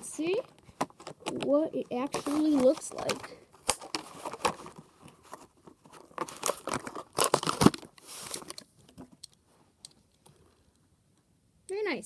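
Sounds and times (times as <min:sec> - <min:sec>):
plastic blister pack tearing: 0:02.0 - 0:04.6, 0:06.0 - 0:08.6.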